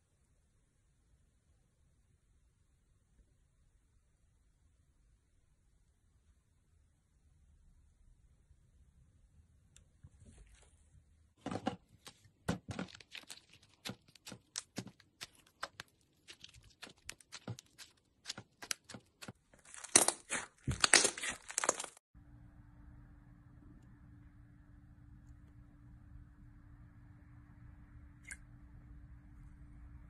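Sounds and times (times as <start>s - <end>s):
faint steady hum: 22.2s - 30.0s.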